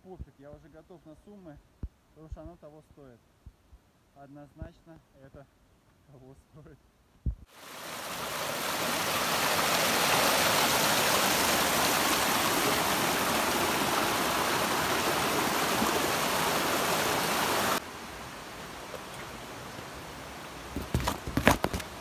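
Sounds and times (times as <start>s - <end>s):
river rapids rushing over rocks: 7.6s - 17.8s.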